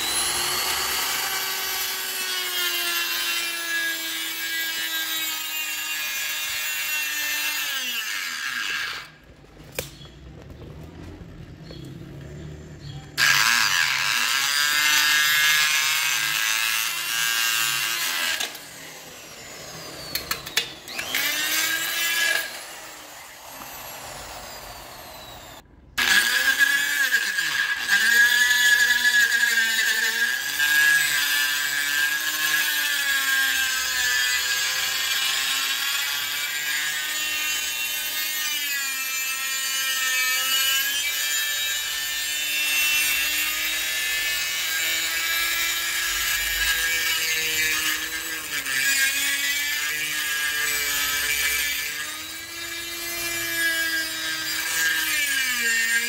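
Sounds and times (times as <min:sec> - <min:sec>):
die grinder grinding metal drum: 0:13.2 - 0:56.0.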